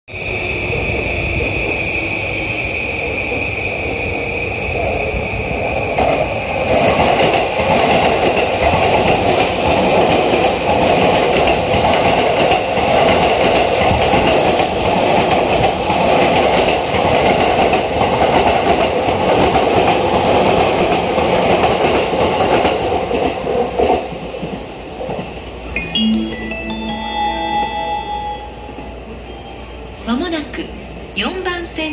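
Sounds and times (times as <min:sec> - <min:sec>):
train wheels rumbling on rail: 0:00.1 - 0:25.7
electric train high whine: 0:25.6 - 0:30.1.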